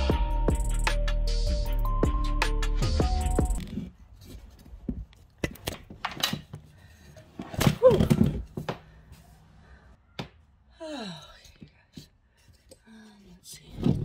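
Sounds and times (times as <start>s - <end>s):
background music: 0.0s - 3.6s.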